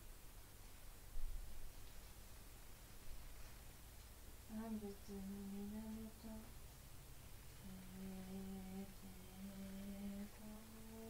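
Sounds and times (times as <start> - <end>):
woman chanting in low notes: 4.5 - 6.6, 7.6 - 11.0.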